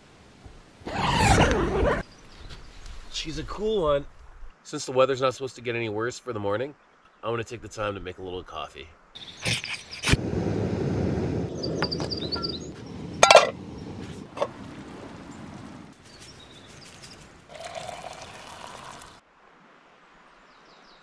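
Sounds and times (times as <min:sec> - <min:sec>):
birds chirping faintly: 0:05.4 - 0:10.1, 0:11.5 - 0:14.2, 0:15.0 - 0:19.0
cookware clinking: 0:13.2 - 0:13.6
liquid pouring: 0:17.5 - 0:19.2.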